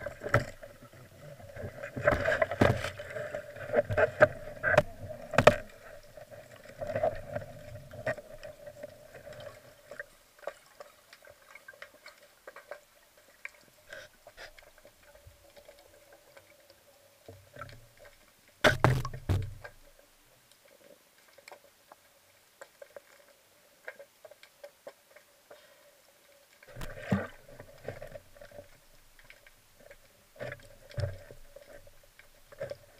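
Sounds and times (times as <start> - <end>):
water movement: 0.0 - 32.9
faint underwater knocks: 18.6 - 19.9.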